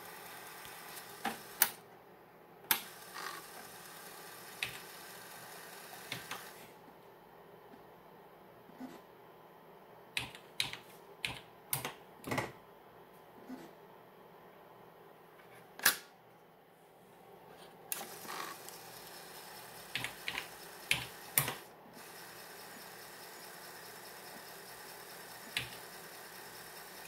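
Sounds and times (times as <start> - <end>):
floppy drive whirring: 0.0 - 2.0, 2.7 - 6.9, 17.9 - 27.0.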